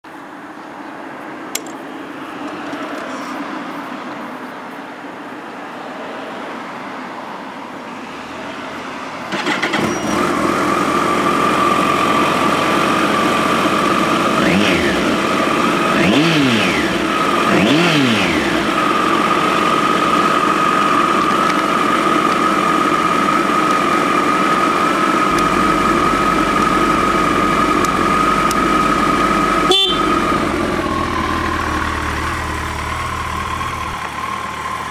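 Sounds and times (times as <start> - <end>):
motorcycle engine starting and idling: 9.2 - 34.9
engine throttle blips: 9.3 - 34.9.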